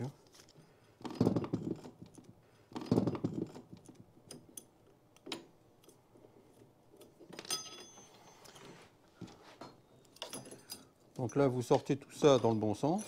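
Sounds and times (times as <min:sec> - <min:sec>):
metal part ringing clink: 0:07.4 - 0:08.4, 0:10.0 - 0:11.5.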